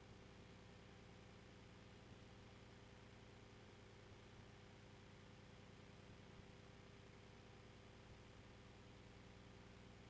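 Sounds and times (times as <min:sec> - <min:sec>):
faint background hiss: 0:00.0 - 0:10.0.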